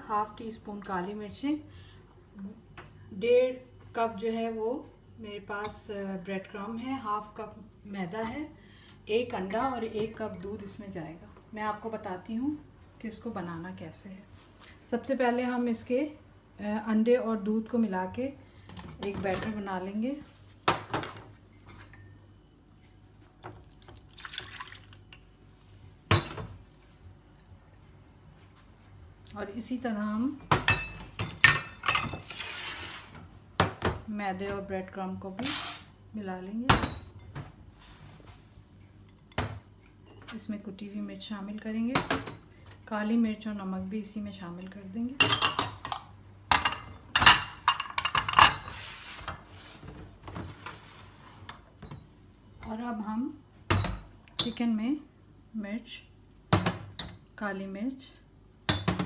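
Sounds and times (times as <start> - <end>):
milk pouring into plastic bowl: 23.8 - 25.1
bowl scraping slide: 32.2 - 33.2.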